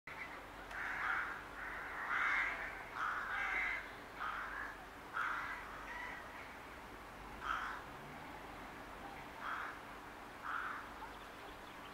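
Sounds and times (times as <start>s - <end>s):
rook cawing: 0.7s - 6.6s, 7.4s - 8.0s, 9.4s - 11.2s.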